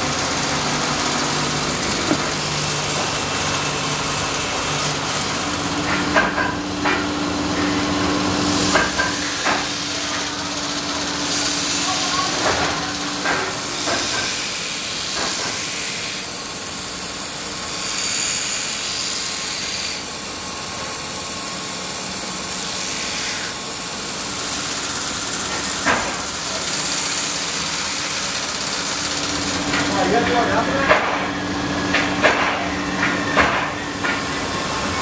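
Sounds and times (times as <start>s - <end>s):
spinning wheel hissing against wood: 22.4s - 30.6s
sharp knocks: 31.9s - 34.2s.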